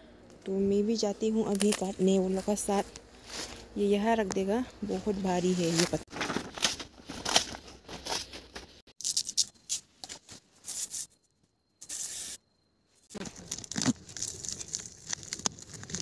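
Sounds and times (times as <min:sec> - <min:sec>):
leaves tearing and rustling: 0:01.4 - 0:03.7, 0:04.8 - 0:08.4, 0:13.1 - 0:16.0
machete chopping leaf stalks: 0:05.6 - 0:08.7.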